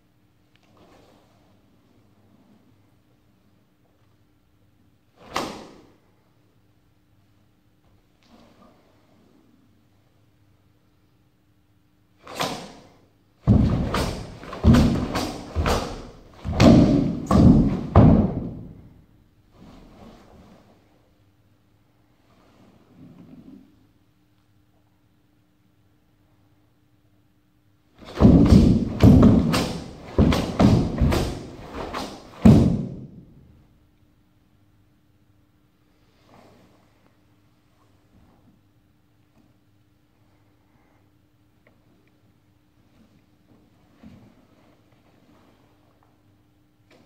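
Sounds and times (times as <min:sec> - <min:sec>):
cloth cracking on fast strikes: 0:13.4 - 0:18.7, 0:28.0 - 0:33.2
bare feet stamping on wooden floor: 0:13.5 - 0:18.8, 0:28.0 - 0:33.1.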